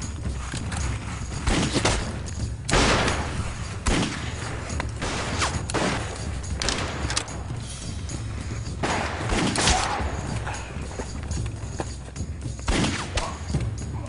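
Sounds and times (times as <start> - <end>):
gunshots: 1.4 - 7.4, 8.8 - 10.3, 12.6 - 13.5.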